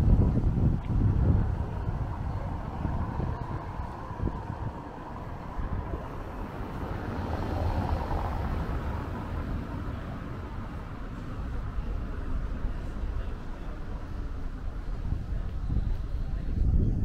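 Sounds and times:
low rumbling background noise: 0.0s - 17.0s.

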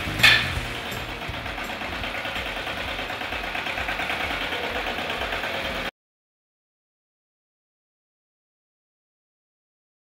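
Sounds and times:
tractor engine pulsing: 0.0s - 5.9s.

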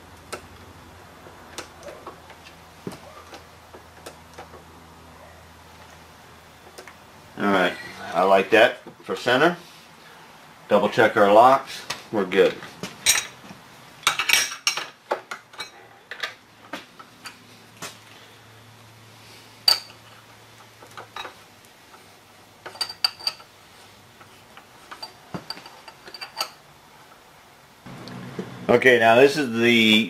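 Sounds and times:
metal tools clinking: 13.0s - 13.4s, 22.6s - 23.5s, 24.9s - 26.6s.

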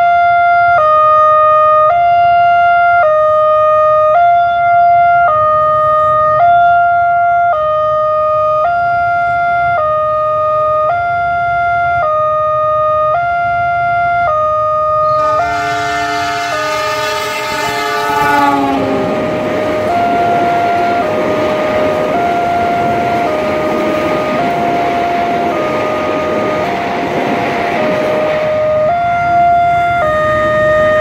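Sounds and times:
train horn: 15.0s - 26.9s
level crossing alarm two tones: 15.0s - 31.0s.

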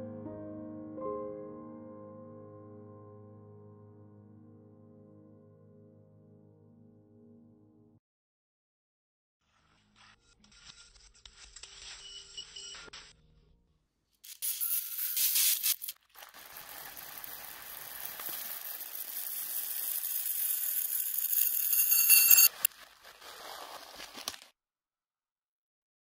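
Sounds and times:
dry beans pouring into metal cup: 14.3s - 22.7s.

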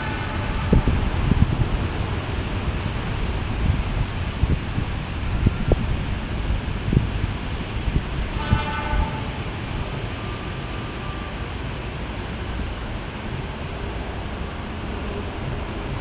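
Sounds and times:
locomotive horn blast: 0.0s - 2.2s, 8.0s - 15.9s
distant diesel train approaching: 0.0s - 16.0s
wind buffeting microphone: 0.0s - 16.0s.

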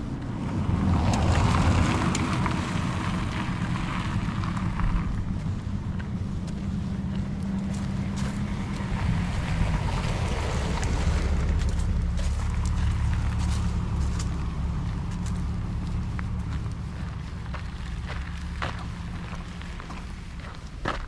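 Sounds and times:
footsteps on paved road: 0.0s - 21.0s
wind buffeting microphone: 0.0s - 21.0s.

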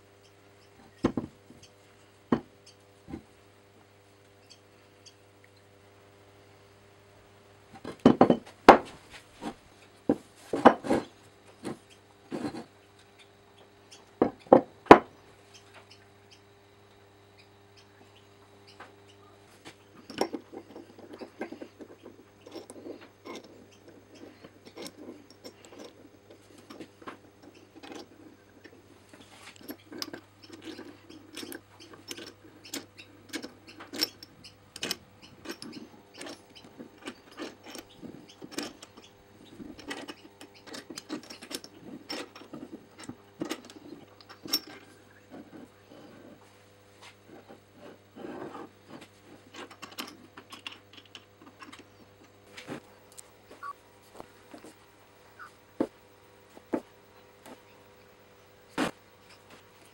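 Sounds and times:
metal clicks taps and scrapes: 20.0s - 46.2s, 47.3s - 54.7s.

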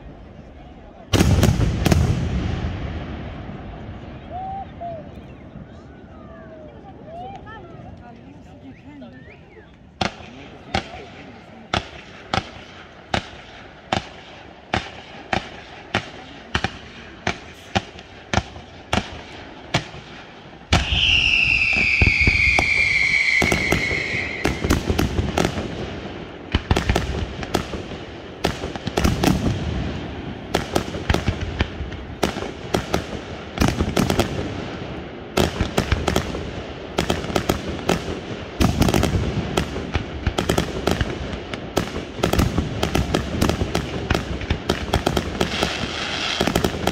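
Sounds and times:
fireworks crackling: 0.0s - 4.6s, 9.8s - 46.9s
falling firework whistle: 20.7s - 24.9s.

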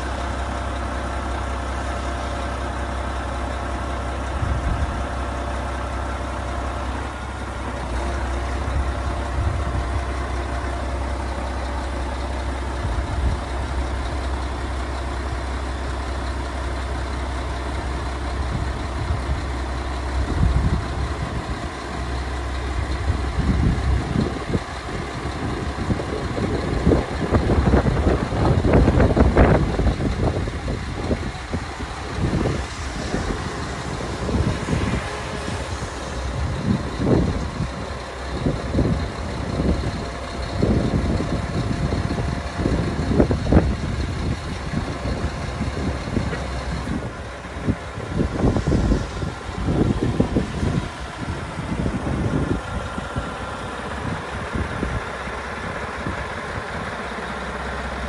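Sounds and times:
crane boom whine: 0.0s - 58.0s
truck diesel engine running: 0.0s - 58.0s.

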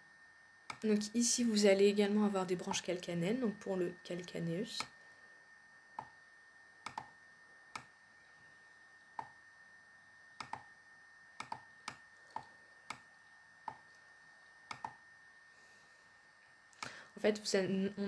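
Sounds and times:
faint high-pitched whine: 0.0s - 18.0s
computer mouse clicking: 0.7s - 0.9s, 6.8s - 7.9s, 9.2s - 9.4s, 10.4s - 10.7s, 11.4s - 13.1s, 13.7s - 14.0s, 14.7s - 15.0s.

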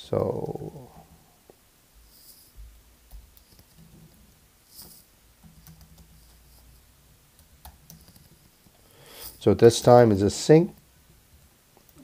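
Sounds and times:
computer keyboard keystrokes: 5.4s - 6.4s.

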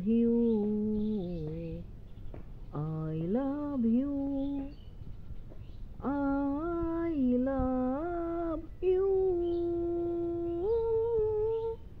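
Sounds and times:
person humming a slow melody: 6.0s - 12.0s.

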